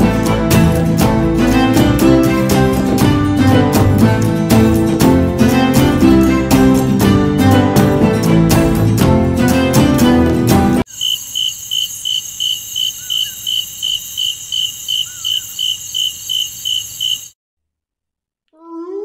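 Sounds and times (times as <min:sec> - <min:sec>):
crickets chirping: 0:10.9 - 0:17.4
high-pitched insect trill: 0:10.9 - 0:17.4.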